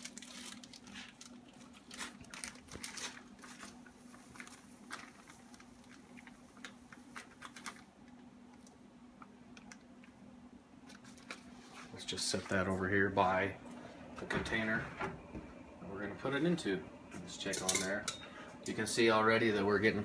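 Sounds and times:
plastic bag crinkling: 0:00.0 - 0:08.7, 0:10.8 - 0:11.6.

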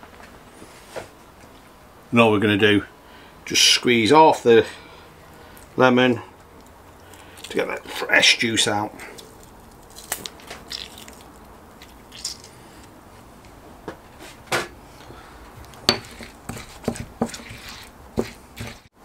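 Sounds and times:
stone pestle knocking in mortar: 0:15.8 - 0:18.9.

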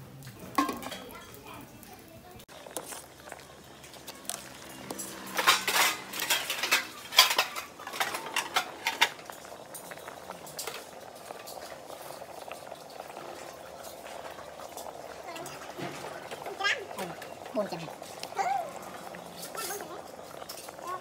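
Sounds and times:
metal ladle clinking on pot: 0:00.5 - 0:01.1, 0:04.3 - 0:10.0
water bubbling: 0:07.9 - 0:21.0.

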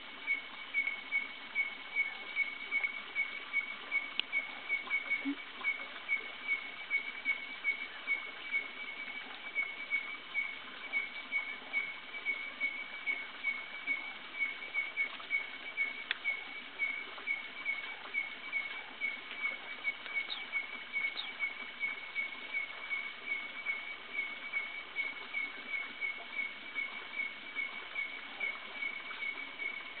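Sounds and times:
faint background hiss: 0:00.0 - 0:30.0.

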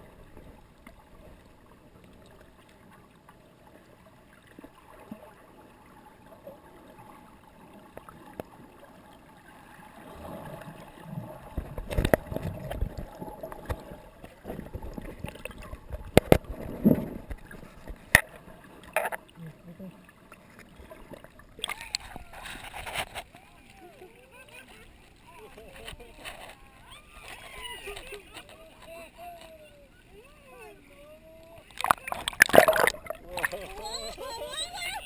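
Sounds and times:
water sloshing and gurgling: 0:00.0 - 0:29.2, 0:30.8 - 0:34.9.

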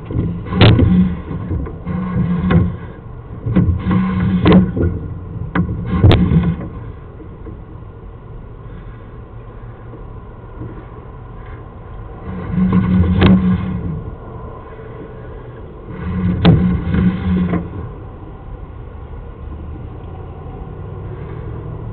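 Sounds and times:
cable rumbling and scraping in pipe: 0:00.0 - 0:21.9.

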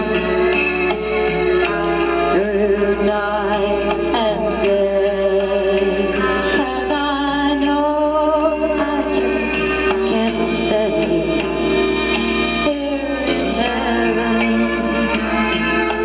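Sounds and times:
slow melody with vibrato: 0:00.0 - 0:16.0.

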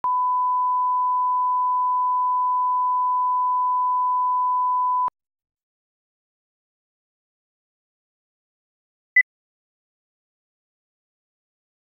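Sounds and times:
pure test tone beep: 0:00.0 - 0:05.1.

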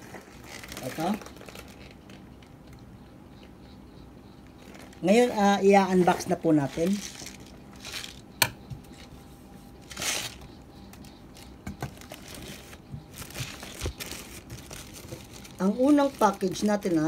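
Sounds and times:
plastic bag crinkling: 0:00.0 - 0:02.4, 0:06.1 - 0:08.2, 0:09.8 - 0:17.0.

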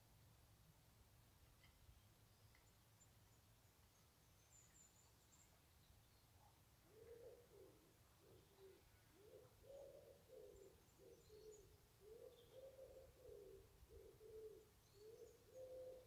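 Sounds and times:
small birds chirping: 0:01.6 - 0:16.0
wood pigeon cooing: 0:06.8 - 0:16.0.

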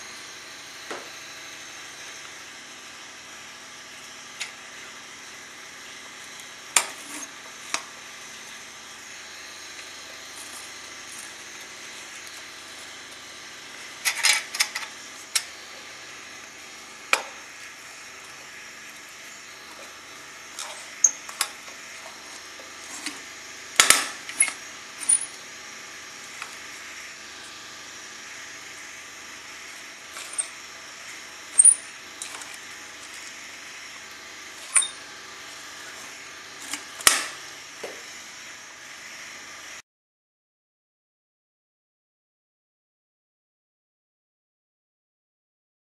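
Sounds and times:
metal parts clinking: 0:14.0 - 0:15.5, 0:23.8 - 0:25.4, 0:30.2 - 0:30.5, 0:31.6 - 0:32.5, 0:34.6 - 0:35.0.

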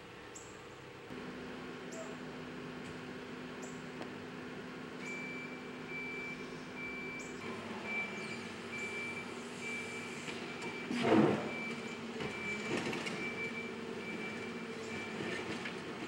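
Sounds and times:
diesel engine running: 0:00.0 - 0:16.0
reversing alarm beeping: 0:05.0 - 0:15.2.

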